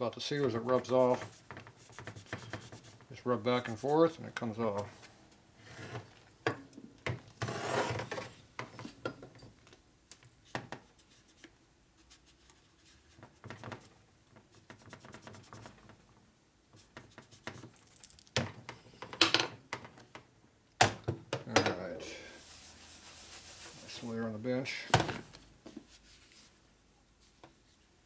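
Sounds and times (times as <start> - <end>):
cloth rag rubbing on metal: 0.2 - 5.3, 22.0 - 24.8, 25.8 - 27.8.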